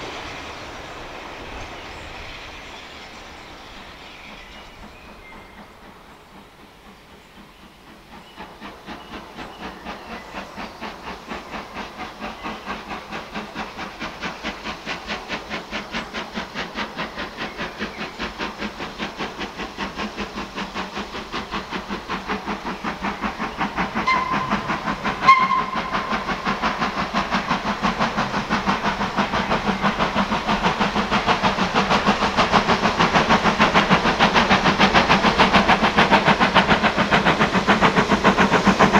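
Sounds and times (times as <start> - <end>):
steam locomotive exhaust beats: 0.0 - 38.9
steam whistle toots: 23.9 - 26.6.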